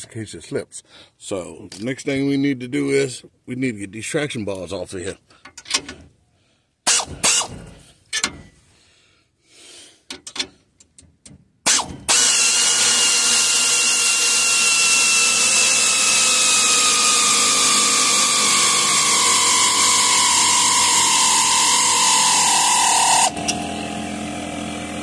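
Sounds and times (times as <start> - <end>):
power ratchet whining: 11.7 - 25.0.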